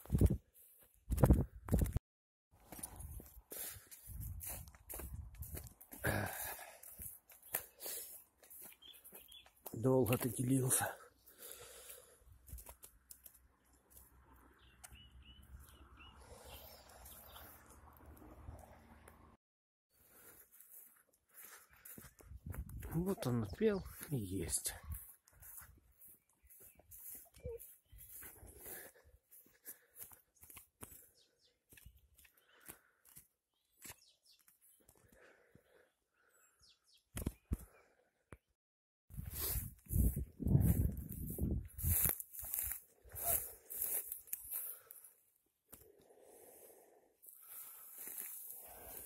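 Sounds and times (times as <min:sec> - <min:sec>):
faint rustling in grass: 0:02.6 - 0:06.0, 0:20.1 - 0:31.1, 0:39.2 - 0:45.0, 0:47.2 - 0:49.0
short high bird chirps: 0:08.7 - 0:09.5.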